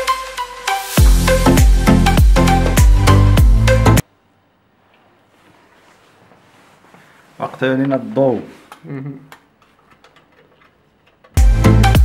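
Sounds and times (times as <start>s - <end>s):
background music: 0.0s - 4.0s, 11.4s - 12.0s.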